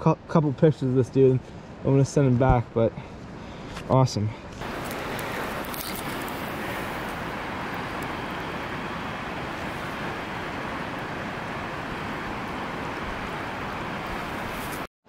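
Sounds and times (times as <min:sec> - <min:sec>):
stream water rushing: 0:04.6 - 0:14.9.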